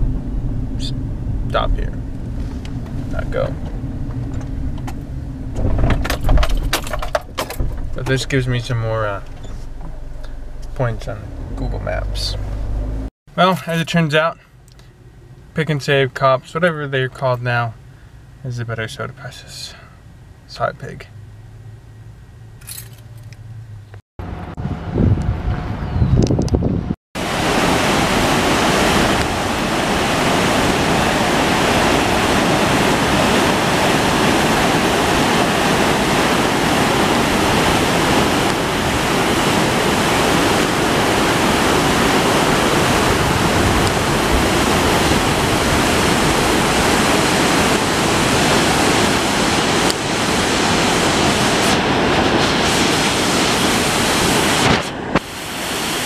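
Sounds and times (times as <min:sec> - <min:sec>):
water rushing through dam spillway: 0:27.2 - 0:56.0.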